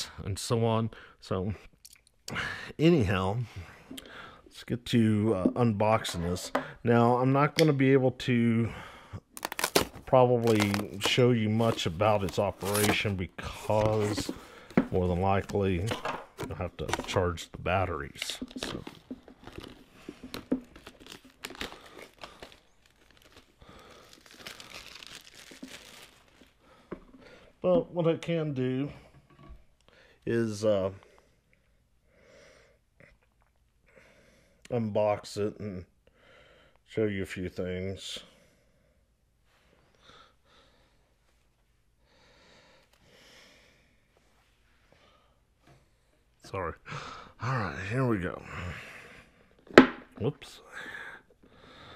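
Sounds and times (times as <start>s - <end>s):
faint soft breaths: 3.4s - 4.6s, 38.1s - 47.7s, 50.5s - 51.9s
wrapping crinkling: 9.3s - 15.9s, 18.0s - 26.8s
packaging knocks and clicks: 13.8s - 17.2s, 18.2s - 22.6s.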